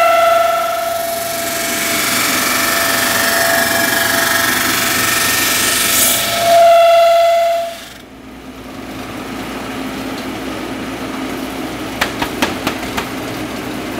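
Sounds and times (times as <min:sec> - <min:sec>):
drum sander running: 0:00.0 - 0:08.2
high steady whine: 0:00.0 - 0:09.3.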